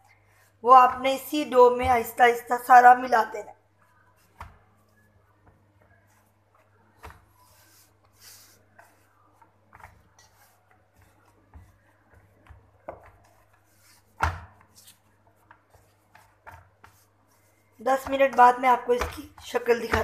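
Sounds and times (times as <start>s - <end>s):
hands kneading dough in metal pan: 0.1s - 20.0s
dough thump: 4.2s - 4.8s, 5.4s - 17.2s, 17.9s - 20.0s.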